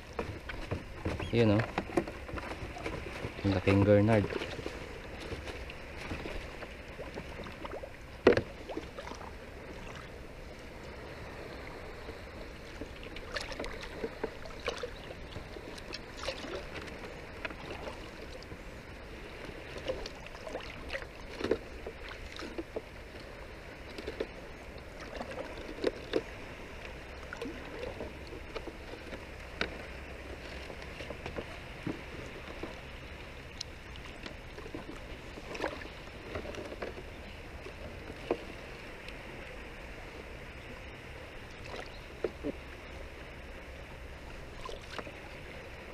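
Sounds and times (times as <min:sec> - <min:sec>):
water dripping and splashing: 0:12.8 - 0:18.4.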